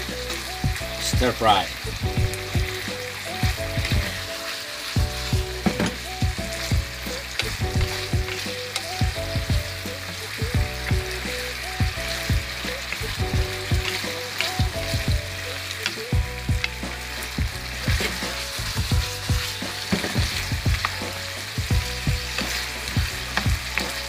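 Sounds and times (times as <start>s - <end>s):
stir-fry sizzling in a frying pan: 0.0s - 24.0s
spatula knocking and scraping pan: 5.0s - 8.4s, 17.8s - 24.0s.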